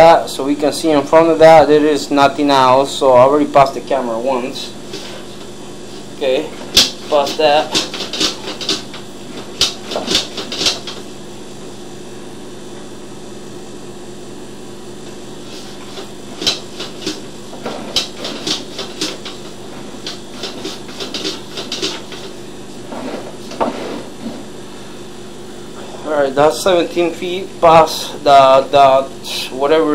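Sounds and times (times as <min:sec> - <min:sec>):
steady hum: 0:00.0 - 0:29.9
cable clicking and rattling: 0:06.6 - 0:11.0, 0:15.6 - 0:22.3.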